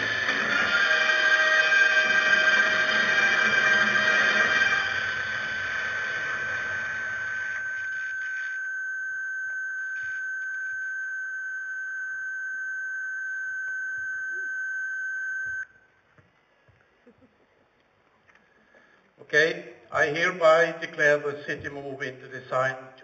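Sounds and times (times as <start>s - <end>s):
high electronic tone: 4.4s - 15.7s.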